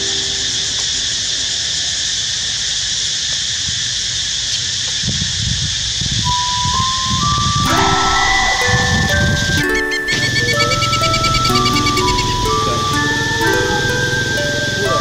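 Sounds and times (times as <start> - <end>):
wind rumbling on microphone: 4.9 - 12.4
electronic music notes: 6.3 - 15.0.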